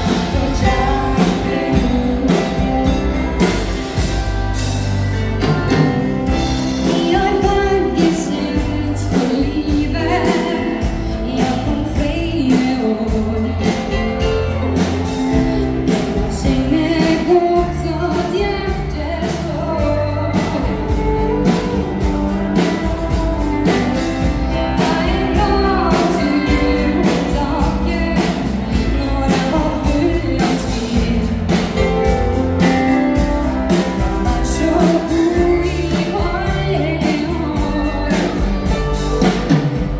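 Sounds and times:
person singing lead: 0.0s - 3.7s
bass: 0.0s - 39.9s
electric guitar: 0.0s - 39.9s
keyboard: 0.0s - 39.9s.

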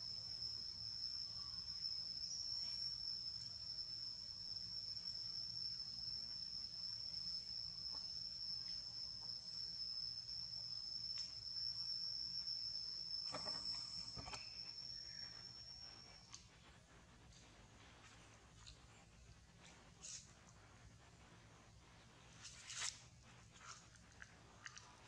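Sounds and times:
high-pitched insect drone: 0.0s - 16.3s.

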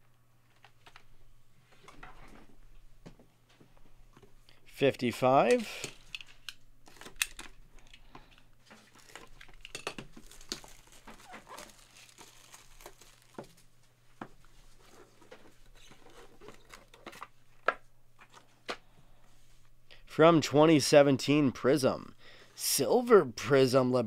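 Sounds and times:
cardboard rustling and scraping: 14.5s - 17.3s.

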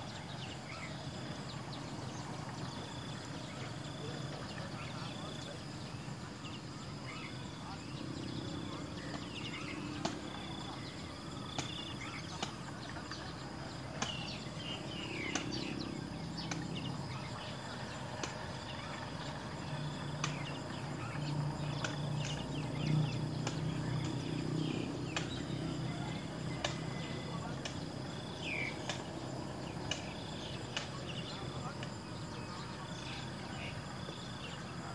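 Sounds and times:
insect drone: 0.0s - 34.9s
sharp clicks: 15.3s - 15.7s.

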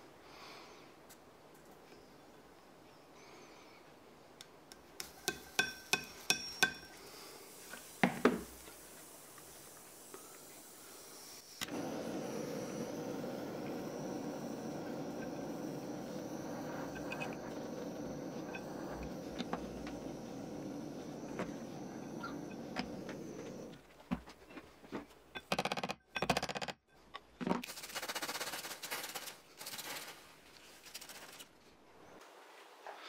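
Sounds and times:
gas torch hissing: 5.0s - 23.8s
gas torch lighting pop: 7.6s - 10.4s, 11.6s - 23.8s.

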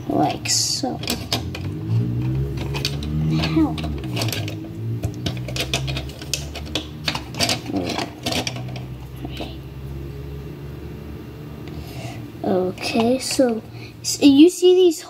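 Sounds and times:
low steady hum: 0.0s - 15.0s
plastic pieces clicking together: 0.9s - 9.6s.

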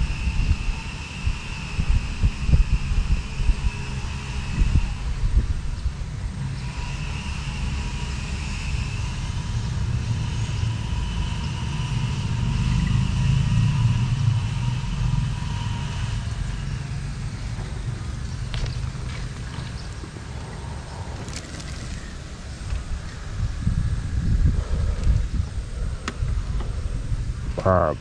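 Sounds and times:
low rumble: 9.2s - 28.0s.

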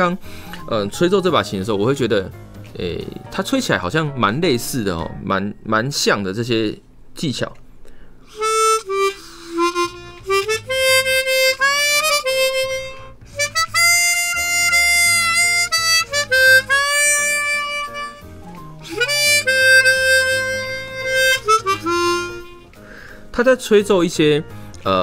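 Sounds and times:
chromatic harmonica phrases: 8.3s - 23.1s.

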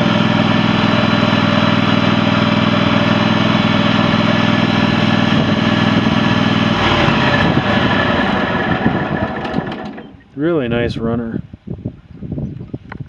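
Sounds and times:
lawn tractor engine running: 0.0s - 10.4s.

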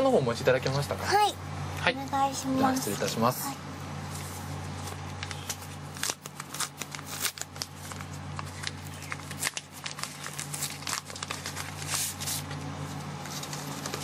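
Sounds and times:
steady low hum: 0.0s - 14.0s
paper rustling and crinkling: 4.1s - 14.0s.

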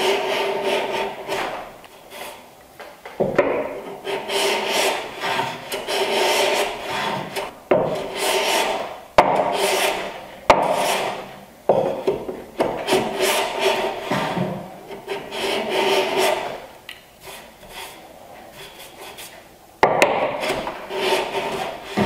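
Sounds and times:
hand plane cutting wood: 0.0s - 2.4s, 3.6s - 16.6s, 20.1s - 22.0s.

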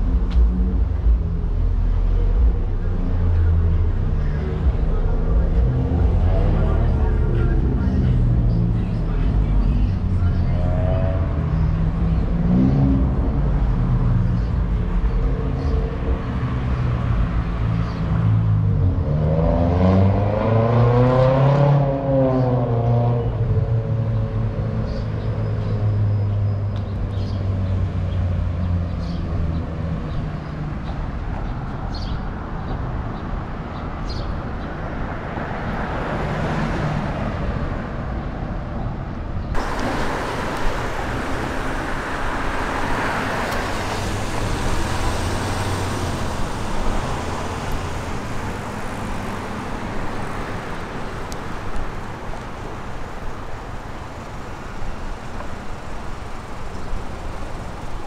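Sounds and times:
vehicle passing close: 39.6s - 55.2s
hiss of passing traffic: 39.6s - 58.0s
vehicle engine running: 39.6s - 58.0s.

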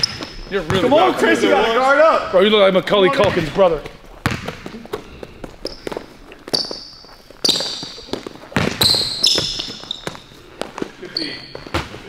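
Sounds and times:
basketball bouncing on a court: 0.0s - 0.9s, 4.2s - 5.0s, 5.6s - 10.3s
sneakers squeaking: 0.0s - 1.6s, 3.0s - 12.0s.

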